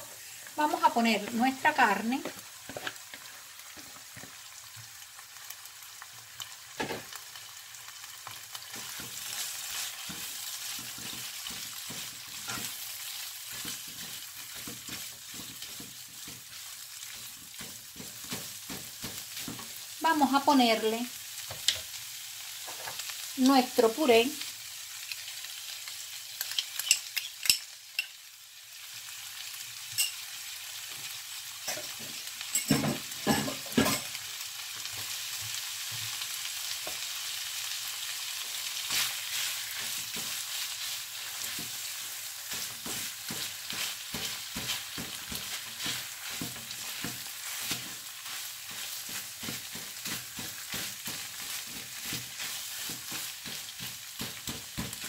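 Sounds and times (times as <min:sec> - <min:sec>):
food sizzling in a frying pan: 0:00.0 - 0:55.0
spatula scraping a pan: 0:08.3 - 0:19.9, 0:38.8 - 0:55.0.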